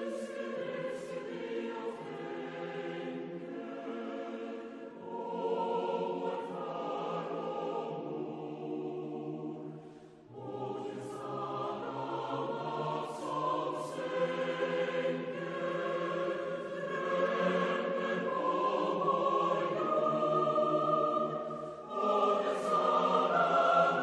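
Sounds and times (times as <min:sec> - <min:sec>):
choir singing sustained chords: 0:00.0 - 0:24.0.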